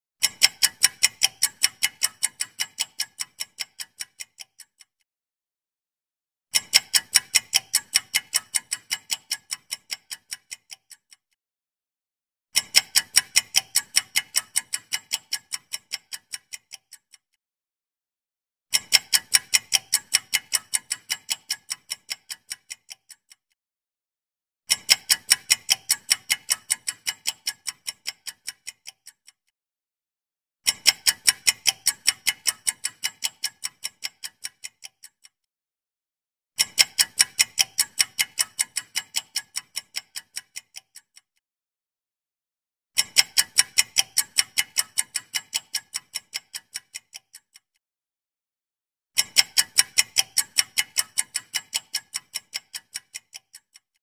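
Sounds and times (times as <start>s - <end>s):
clock ticking quickly: 0.2s - 5.0s, 6.5s - 11.3s, 12.6s - 17.4s, 18.7s - 23.4s, 24.7s - 29.4s, 30.6s - 35.4s, 36.6s - 41.4s, 43.0s - 47.7s, 49.2s - 54.0s.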